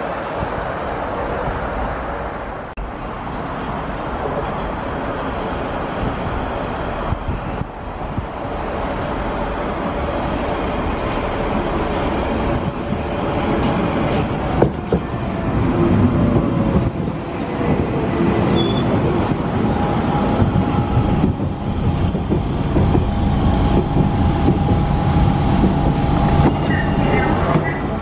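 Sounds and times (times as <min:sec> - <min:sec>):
train wheels whining on rails: 0:01.4 - 0:28.0
train braking to a stop: 0:18.5 - 0:19.0.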